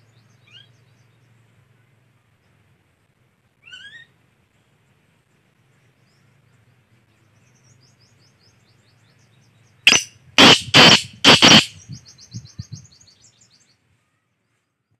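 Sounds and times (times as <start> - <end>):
small birds chirping: 5.7 - 14.9.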